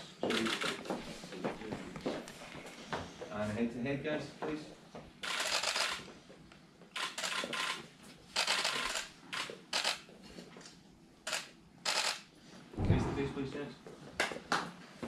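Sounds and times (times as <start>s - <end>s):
camera shutters firing in bursts: 0.3s - 0.8s, 5.2s - 6.0s, 6.9s - 10.1s, 11.2s - 12.3s.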